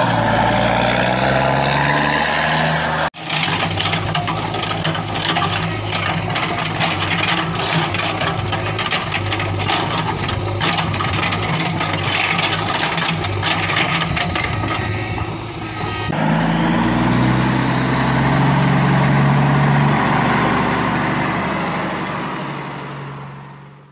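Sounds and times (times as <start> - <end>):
engine pitch stepping up and down: 0.0 - 3.1, 15.6 - 23.5
truck engine clattering idle: 3.2 - 16.2.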